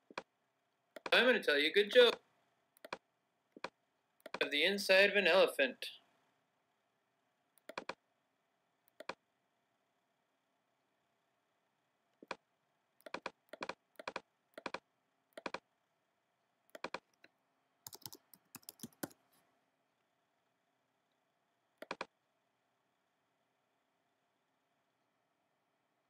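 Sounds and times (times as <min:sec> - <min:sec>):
keyboard typing: 0:00.0 - 0:00.3, 0:00.9 - 0:01.3, 0:02.8 - 0:04.5, 0:07.6 - 0:08.0, 0:08.9 - 0:09.2, 0:13.0 - 0:15.6, 0:16.7 - 0:19.2, 0:21.8 - 0:22.1
computer mouse clicking: 0:01.0 - 0:01.2, 0:02.8 - 0:03.0, 0:03.6 - 0:04.5, 0:07.6 - 0:08.0, 0:08.9 - 0:09.2, 0:13.0 - 0:15.6, 0:16.7 - 0:19.2, 0:21.8 - 0:22.1.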